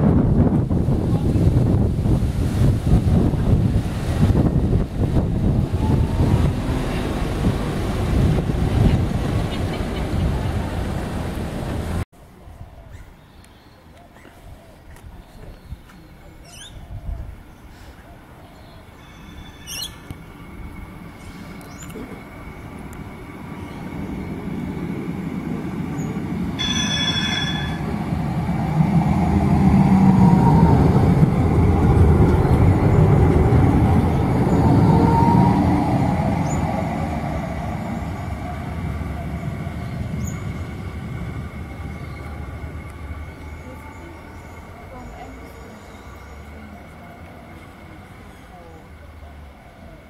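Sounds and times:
tram passing: 0.0 - 12.6, 15.0 - 50.0
tram horn: 26.6 - 28.3.

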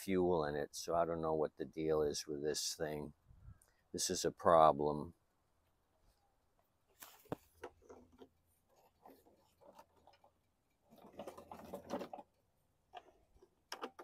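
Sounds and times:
plastic knocks and scrapes: 7.0 - 14.0.

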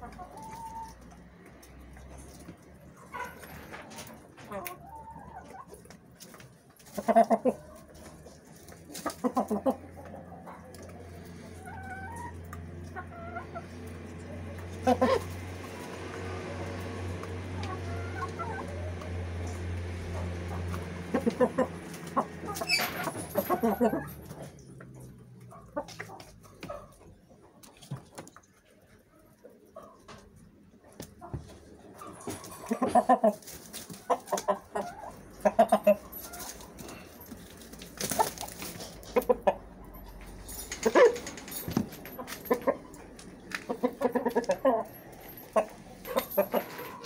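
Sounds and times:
chickens clucking: 0.0 - 47.0
chicken squawk: 14.8 - 15.4.

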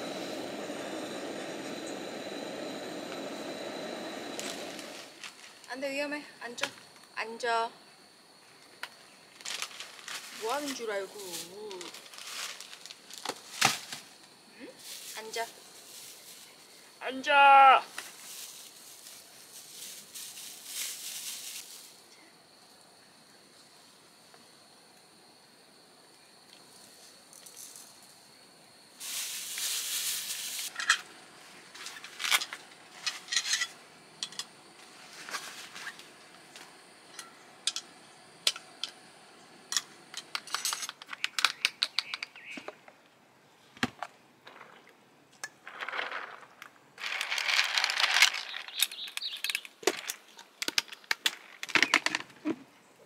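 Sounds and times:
rustling and crinkling: 4.3 - 5.8, 8.8 - 16.9, 17.8 - 22.2, 29.0 - 36.8, 45.5 - 52.6.

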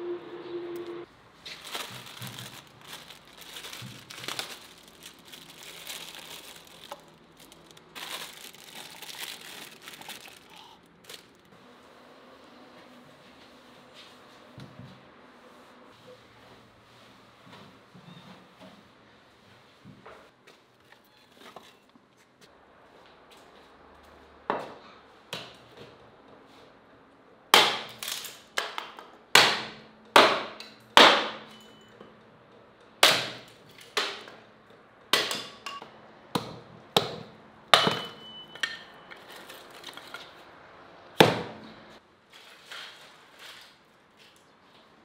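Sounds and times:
hatchet chopping wood: 27.6 - 28.0, 28.6 - 31.4, 33.0 - 34.2, 35.1 - 35.6, 36.4 - 38.1, 41.2 - 41.5.

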